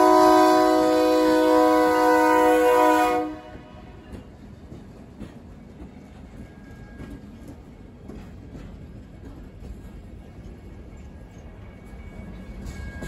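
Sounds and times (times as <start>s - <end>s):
locomotive air horn chord: 0.0s - 3.8s
train cars rumbling past: 0.0s - 13.0s.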